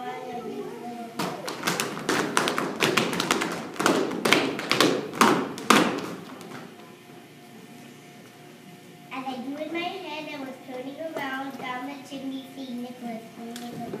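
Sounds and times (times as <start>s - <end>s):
children stamping on hard floor: 1.2s - 6.8s.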